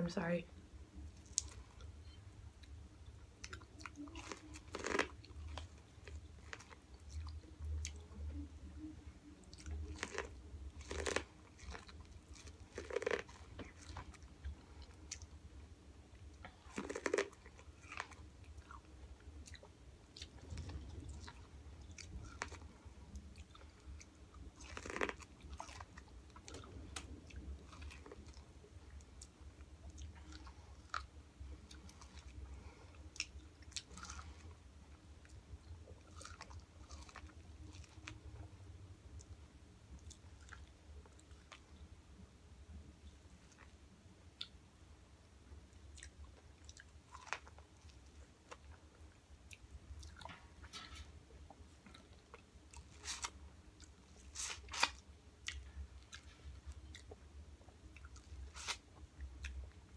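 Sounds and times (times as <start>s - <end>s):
biting and chewing corn: 3.4s - 8.2s, 9.5s - 15.5s, 16.2s - 38.4s, 51.8s - 59.7s.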